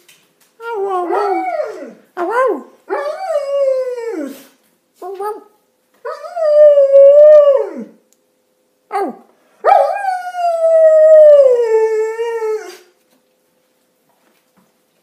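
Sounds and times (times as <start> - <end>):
dog howling: 0.6 - 4.3, 6.1 - 8.0.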